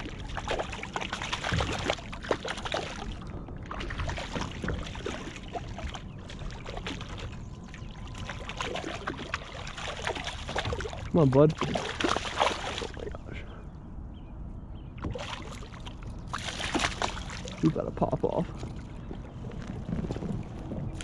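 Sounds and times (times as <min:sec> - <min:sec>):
fish thrashing and splashing: 0:00.0 - 0:13.2, 0:15.0 - 0:17.7
water sloshing: 0:00.0 - 0:13.5, 0:15.0 - 0:21.0.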